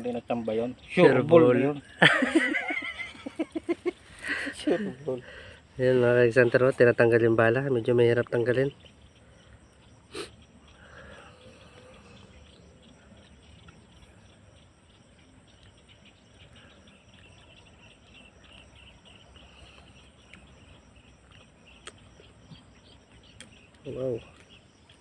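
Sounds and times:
faint insects chirping: 0.0s - 25.0s.

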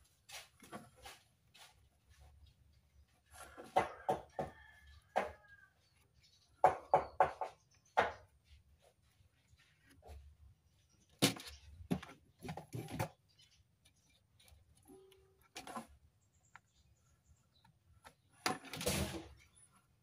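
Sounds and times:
scraping rustle of board: 0.0s - 3.8s
knocks and taps on workbench: 6.6s - 8.3s.

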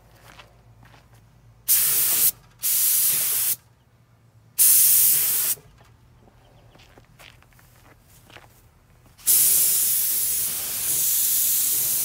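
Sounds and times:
paint spray gun hissing: 1.7s - 3.6s, 4.6s - 5.6s, 9.2s - 12.0s.

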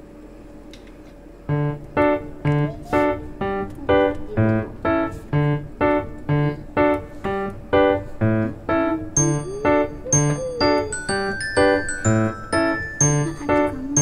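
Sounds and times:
bass notes: 1.5s - 2.8s
bouncy keyboard tune: 1.5s - 14.0s.

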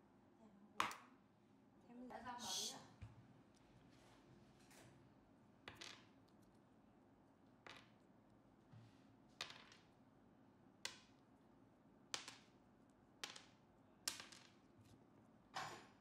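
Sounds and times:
hard pieces set on wooden table: 9.4s - 9.9s.

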